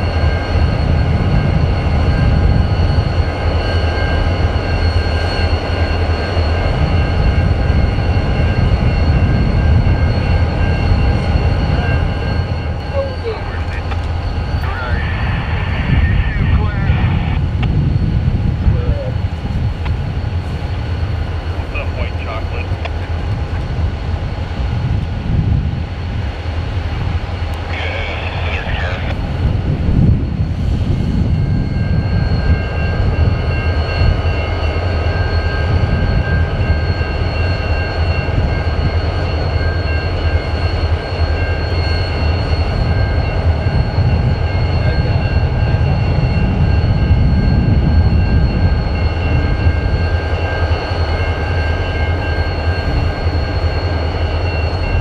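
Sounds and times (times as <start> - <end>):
high whine: 0.0 - 55.0
locomotive engine rumble: 0.0 - 55.0.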